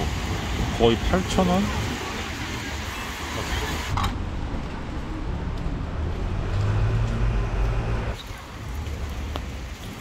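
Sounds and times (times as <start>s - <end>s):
tyre hiss on wet road: 0.0s - 3.9s
low vehicle rumble: 3.9s - 9.7s.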